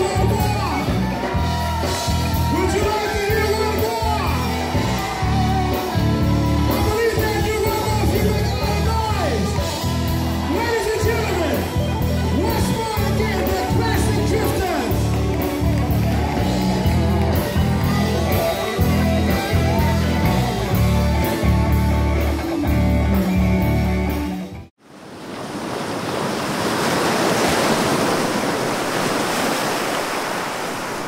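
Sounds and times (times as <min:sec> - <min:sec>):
band with beat and bass: 0:00.0 - 0:24.6
rushing noise like surf: 0:24.8 - 0:31.0.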